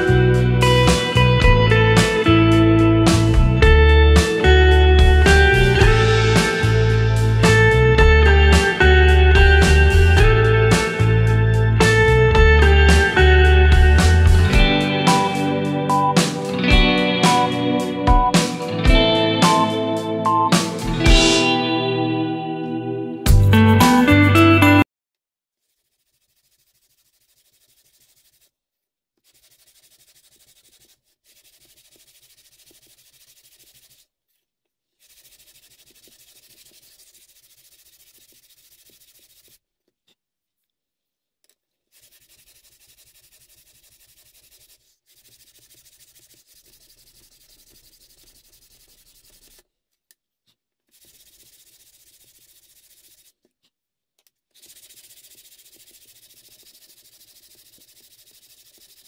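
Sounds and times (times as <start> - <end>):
sandpaper scratching on wood: 4.2 - 7.8, 9.5 - 12.2, 12.8 - 18.8, 25.6 - 28.5, 29.2 - 34.1, 35.0 - 39.6, 41.9 - 49.6, 50.9 - 53.4, 54.5 - 59.0.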